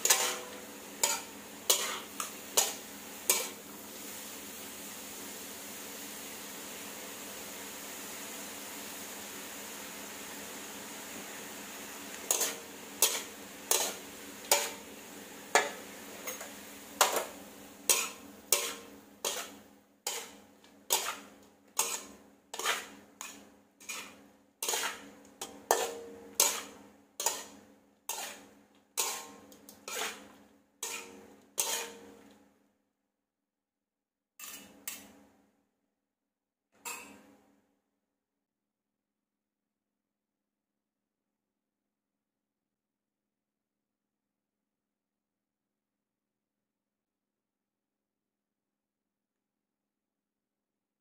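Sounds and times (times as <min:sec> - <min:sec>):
spatula striking metal wok: 0:00.0 - 0:03.7, 0:12.2 - 0:32.3, 0:36.8 - 0:37.2.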